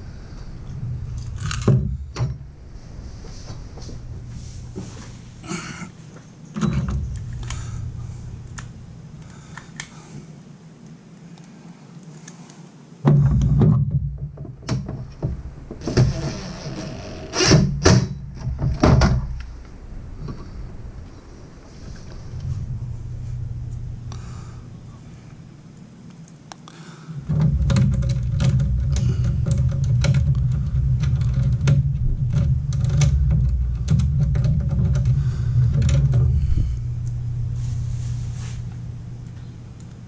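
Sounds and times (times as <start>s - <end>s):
low rumble: 0.0s - 10.0s, 14.0s - 26.0s, 27.2s - 40.0s
steady low hum: 0.0s - 40.0s
clicks and knocks of metal parts: 1.2s - 2.4s, 27.2s - 36.4s
loud knocks: 13.0s - 19.4s.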